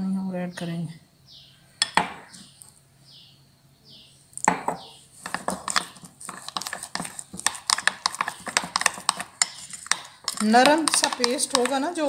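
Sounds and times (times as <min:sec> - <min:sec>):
metal spoon scraping ceramic plate: 0:04.8 - 0:11.8.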